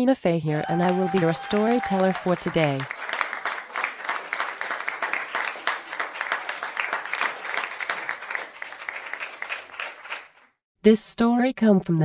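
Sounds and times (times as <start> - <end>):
audience applauding: 0.6 - 10.6.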